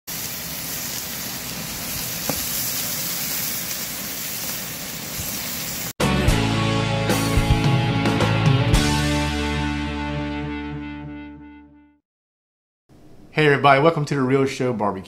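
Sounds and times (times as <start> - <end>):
steak sizzling: 0.1 - 6.0
music: 6.0 - 12.0.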